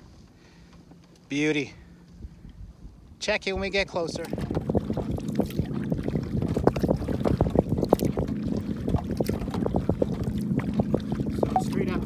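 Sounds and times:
wind rumble on microphone: 0:02.2 - 0:12.0
water lapping against kayak: 0:03.6 - 0:12.0.

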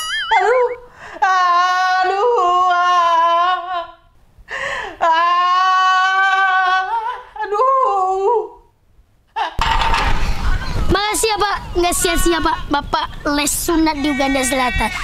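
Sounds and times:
man wailing and sobbing: 0:00.0 - 0:04.0.

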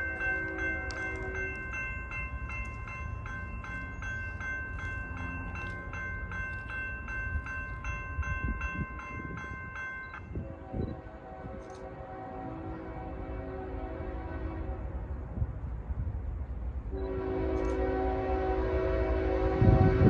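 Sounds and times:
crossing bell ringing rapidly: 0:00.0 - 0:10.4
low train rumble: 0:00.0 - 0:20.0.

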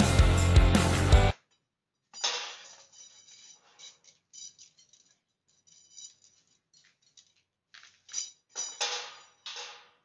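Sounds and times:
metal rods clinking on a tray: 0:02.2 - 0:10.0.

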